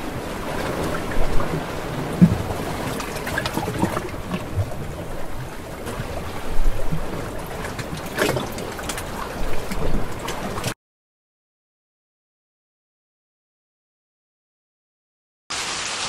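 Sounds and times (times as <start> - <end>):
rushing water-like noise: 0.0 - 10.8, 15.5 - 16.0.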